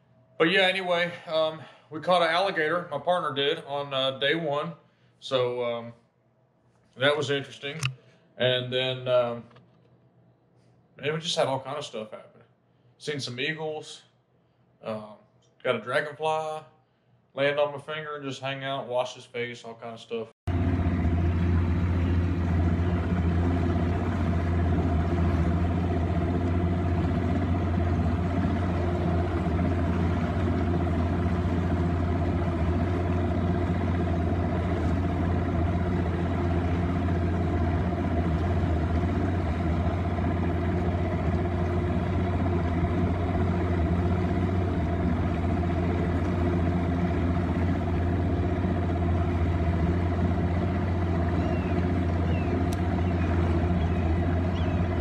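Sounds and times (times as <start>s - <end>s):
engine running steadily: 20.5s - 55.0s.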